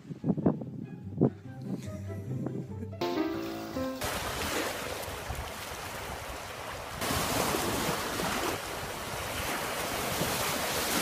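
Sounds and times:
wind buffeting microphone: 0.0 - 2.8, 4.2 - 11.0
surf breaking on shore: 4.0 - 11.0
waves splashing over driftwood: 4.0 - 11.0.

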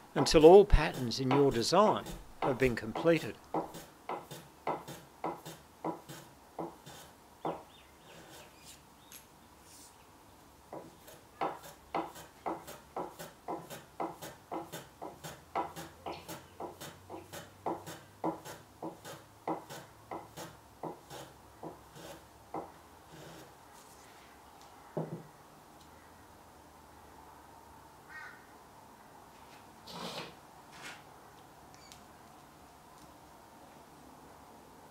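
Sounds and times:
hand plane shaving wood: 10.9 - 22.2.

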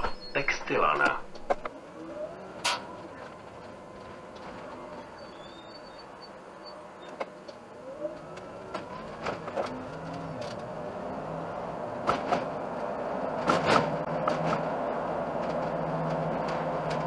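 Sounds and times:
bus drivetrain whine: 0.0 - 17.0
road noise: 0.0 - 17.0.

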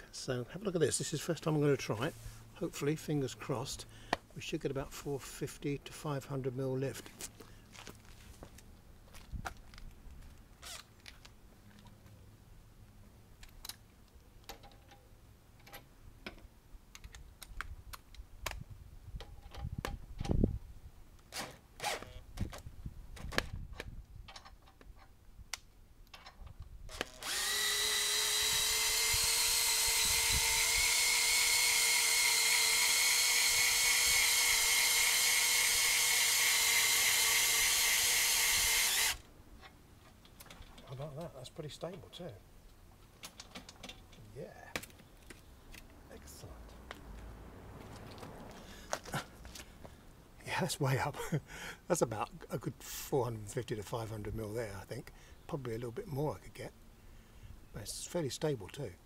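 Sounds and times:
cordless drill whining: 26.9 - 39.2.

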